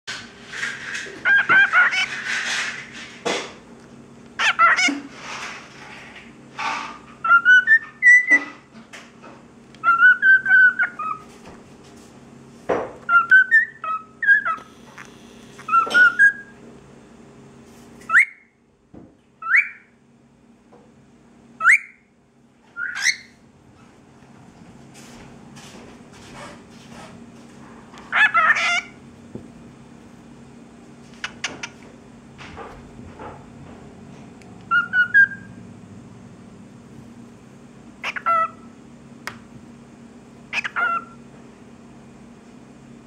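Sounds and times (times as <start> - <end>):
cockatiel whistling: 7.2 - 8.5, 9.8 - 11.2, 13.1 - 14.6, 15.6 - 16.5, 18.1 - 18.5, 19.4 - 19.9, 21.6 - 22.0, 22.8 - 23.4, 34.7 - 35.6.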